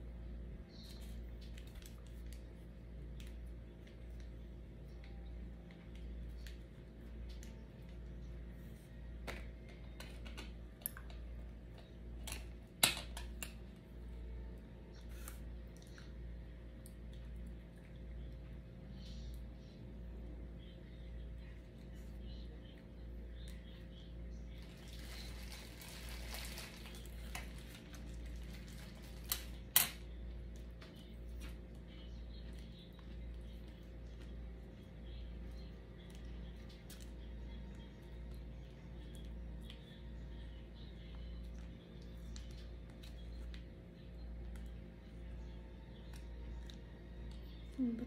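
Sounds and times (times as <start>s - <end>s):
steady low hum: 0.0s - 48.0s
light eating clicks and taps: 0.8s - 8.4s, 9.2s - 14.2s, 14.9s - 19.9s, 29.2s - 47.8s.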